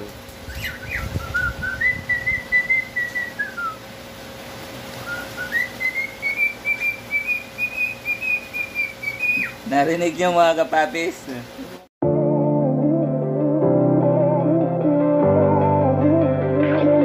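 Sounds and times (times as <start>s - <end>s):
man whistling: 0.6s - 3.8s, 5.0s - 9.6s.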